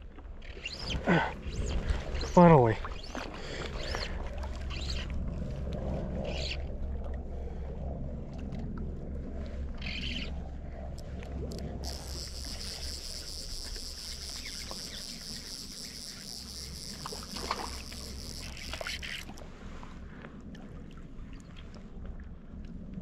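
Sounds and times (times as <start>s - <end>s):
wind on microphone: 0.6s - 23.0s
fishing reel clicker buzzing: 11.5s - 19.4s.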